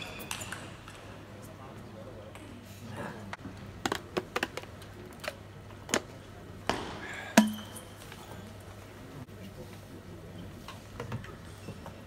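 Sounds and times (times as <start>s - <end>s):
table tennis ball hits: 6.7s - 7.8s.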